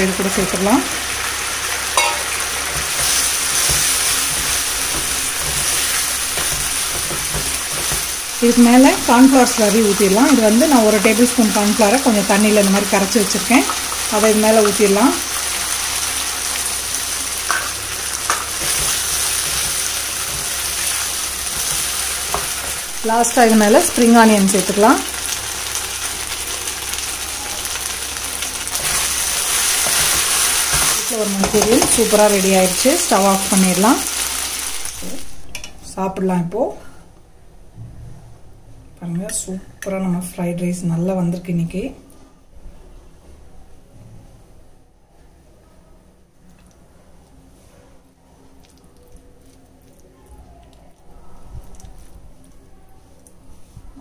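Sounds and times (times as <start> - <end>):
food sizzling in a pan: 0.0 - 35.7
spatula stirring in a pan: 2.0 - 8.3, 17.2 - 22.9, 28.7 - 32.2.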